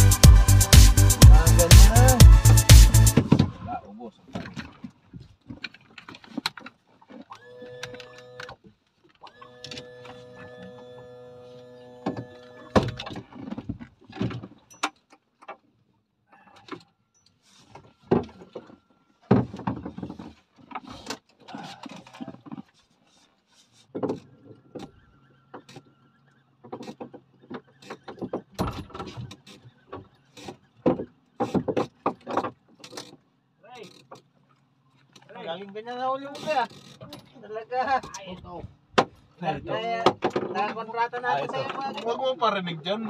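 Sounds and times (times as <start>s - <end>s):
fishing reel whirring: 9.2s - 12.9s.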